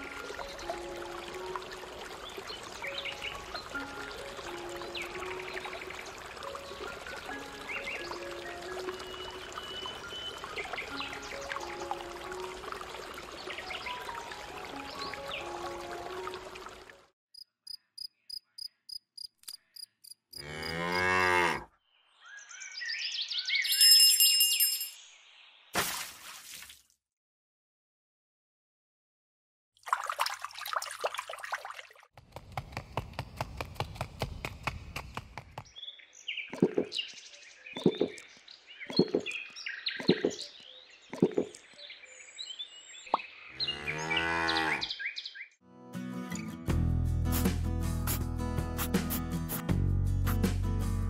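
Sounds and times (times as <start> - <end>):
cricket chirping: 17.4 - 20.4
cow mooing: 20.4 - 21.7, 43.5 - 44.9
water splashing and clattering: 25.8 - 26.9, 29.8 - 35.7
birds chirping: 32.4 - 45.6.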